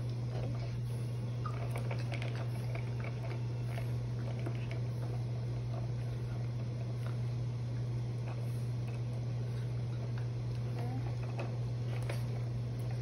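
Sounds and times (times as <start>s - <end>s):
steady low hum: 0.0s - 13.0s
dog chewing plastic toy: 0.3s - 7.2s.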